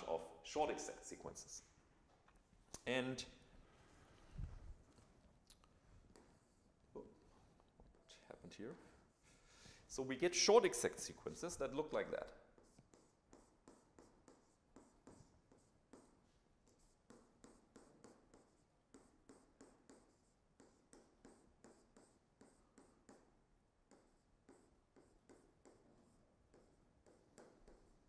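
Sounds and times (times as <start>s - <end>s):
stylus tapping and scratching: 10.7s - 28.0s.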